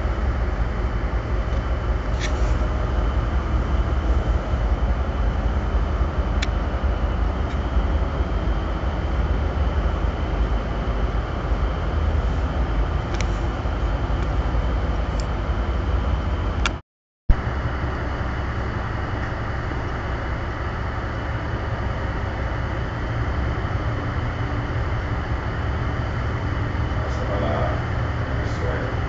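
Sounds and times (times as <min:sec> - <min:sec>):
diesel engines droning: 0:17.4 - 0:29.0.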